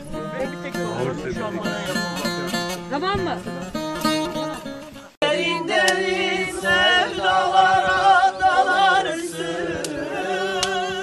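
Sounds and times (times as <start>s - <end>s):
group singing unaccompanied: 5.2s - 11.0s.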